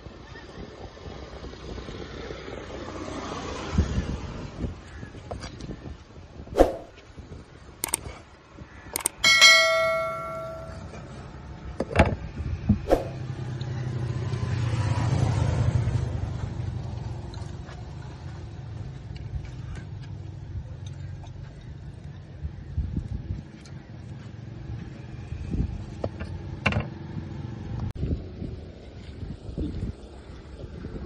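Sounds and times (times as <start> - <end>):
ringing metallic clang: 9.0 - 11.0
passing vehicle rumble: 12.5 - 18.8.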